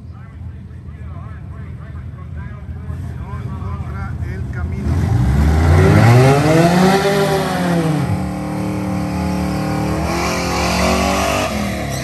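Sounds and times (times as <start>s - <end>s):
car engine revving: 4.0s - 12.0s.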